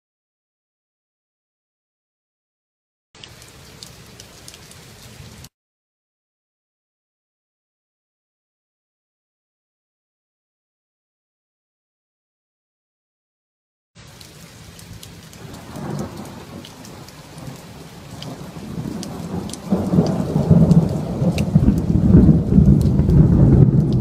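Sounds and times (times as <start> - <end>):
raindrops ticking nearby: 3.2 - 5.5, 14.0 - 24.0
steady rain: 3.2 - 5.5, 14.0 - 24.0
thunder rumbling: 15.4 - 24.0.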